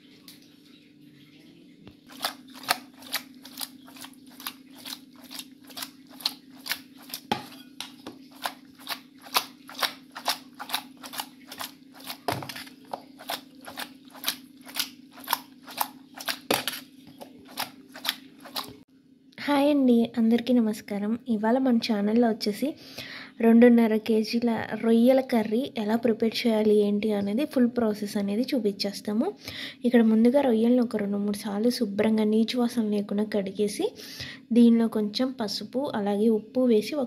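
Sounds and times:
wet squishing of prawns by hand: 2.0s - 18.8s.

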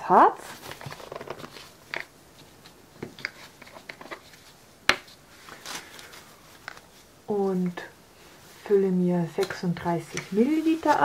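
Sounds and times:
plastic cups clicking and rustling: 0.6s - 5.2s, 9.4s - 11.0s.

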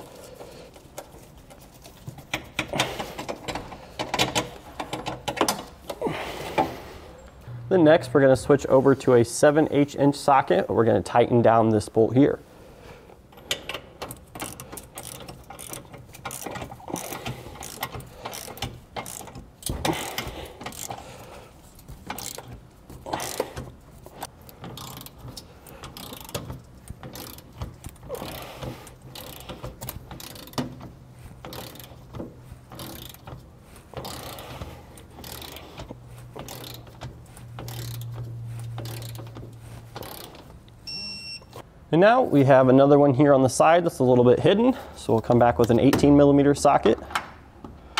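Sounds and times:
low steady hum: 6.7s - 9.9s
socket ratchet clicking: 13.4s - 21.0s, 22.1s - 23.7s, 24.6s - 30.8s, 31.4s - 32.1s, 32.7s - 33.4s, 34.0s - 40.8s.

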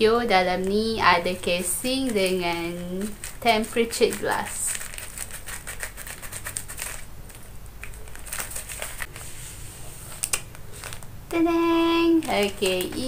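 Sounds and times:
plastic packaging crinkling: 0.6s - 9.3s, 10.0s - 11.2s, 12.0s - 13.0s
scissors snipping plastic mailer: 1.5s - 7.1s, 12.1s - 13.0s.

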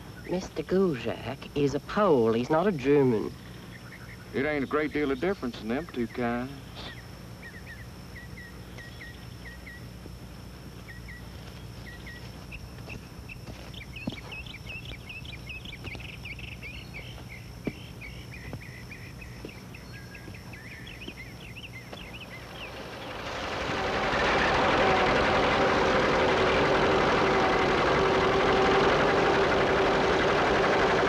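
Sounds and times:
small birds chirping: 0.0s - 23.5s
high insect trill: 0.0s - 31.0s
low hum: 3.3s - 31.0s.

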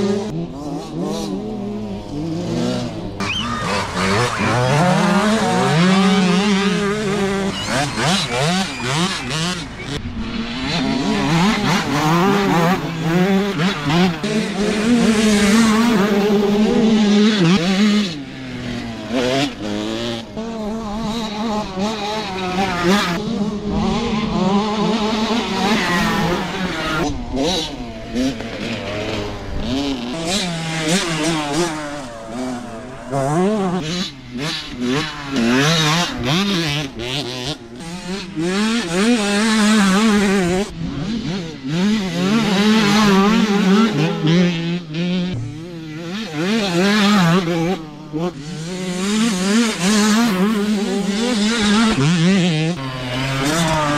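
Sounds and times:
dirt bike engines revving: 0.0s - 53.9s.

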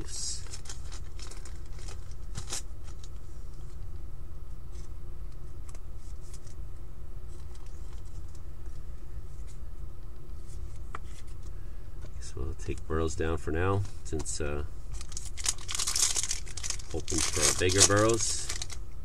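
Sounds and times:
cards clicking and rustling: 13.7s - 18.8s.

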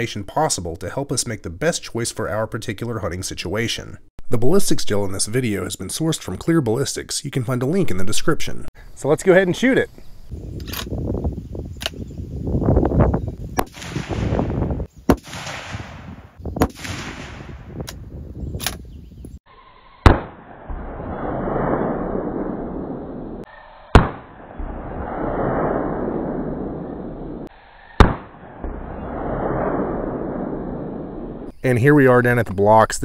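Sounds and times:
rifle shots: 13.6s - 17.8s, 20.0s - 31.5s.

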